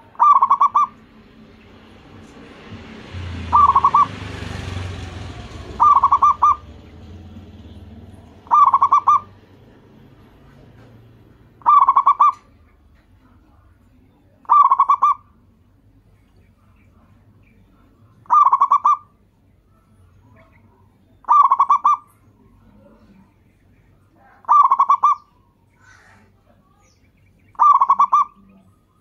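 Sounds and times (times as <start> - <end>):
dove cooing: 0.0 - 1.1, 3.2 - 7.2, 8.2 - 10.9, 11.6 - 12.7, 14.4 - 15.3, 18.2 - 19.1, 20.3 - 23.3, 24.2 - 26.4, 27.5 - 29.0
low rumbling noise: 0.0 - 18.4.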